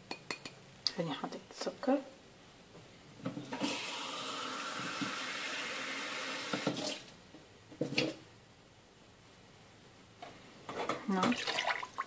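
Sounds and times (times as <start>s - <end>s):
tap water filling cup: 4.7s - 5.2s.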